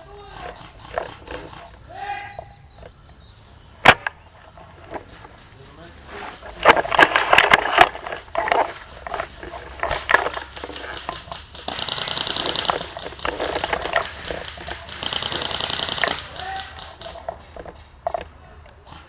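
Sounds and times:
airsoft gun shots: 3.8s - 4.2s, 10.2s - 17.6s
rapid high rattle: 6.2s - 18.0s.

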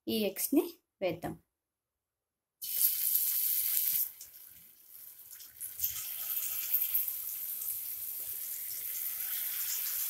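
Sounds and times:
hot oil sizzling in a frying pan: 2.6s - 10.0s.

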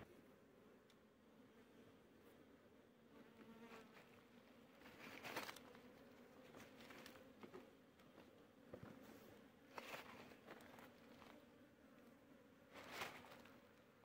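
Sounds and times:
bees buzzing: 0.0s - 14.0s
rustle: 3.4s - 7.3s, 9.0s - 11.5s, 12.7s - 13.9s.

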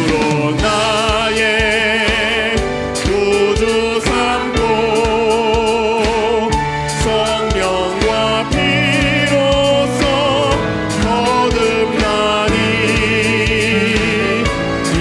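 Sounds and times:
keyboards: 0.0s - 15.0s
steady drum beat: 0.0s - 15.0s.

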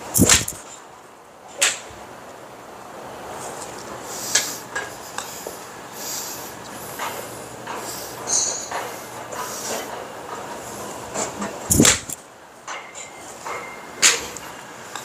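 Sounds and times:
steady background hum: 0.0s - 15.0s
golf club striking ball: 0.2s - 0.7s, 11.7s - 12.2s.

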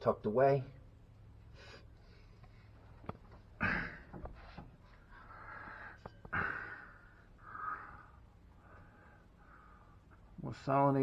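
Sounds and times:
man breathing noisily: 3.6s - 10.2s.

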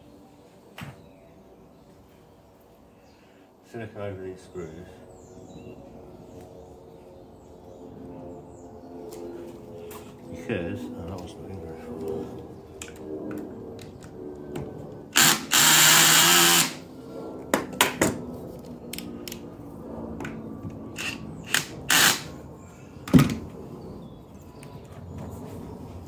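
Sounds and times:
cordless drill running: 15.2s - 16.8s, 21.0s - 22.3s.

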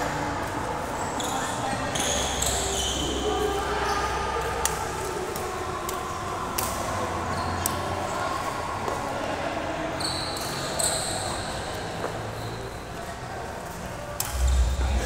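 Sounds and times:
shoes squeaking on court floor: 0.9s - 4.1s, 9.9s - 13.2s
racket hitting shuttlecock: 14.2s - 14.6s.

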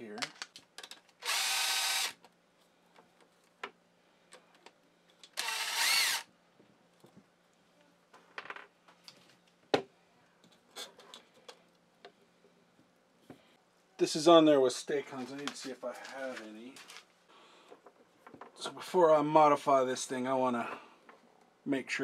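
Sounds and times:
cordless drill running: 1.2s - 2.2s, 5.4s - 6.3s.

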